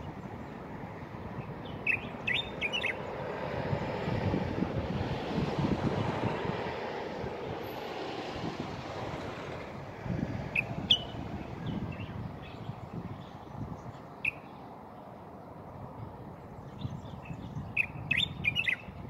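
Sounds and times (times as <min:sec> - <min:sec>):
passing vehicle rumble: 0:00.0 - 0:19.0
bird chirps: 0:01.6 - 0:03.1, 0:10.6 - 0:13.3, 0:14.2 - 0:14.6, 0:16.8 - 0:18.9.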